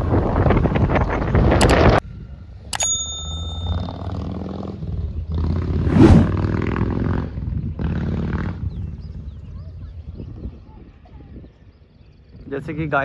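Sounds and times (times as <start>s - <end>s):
short ringing ding: 2.8s - 4.1s
vehicle engine passing: 3.9s - 8.7s.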